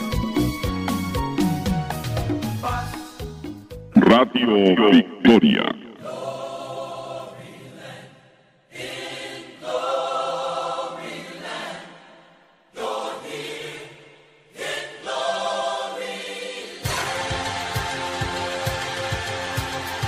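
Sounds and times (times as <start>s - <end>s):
choir singing long notes: 5.1s - 20.0s.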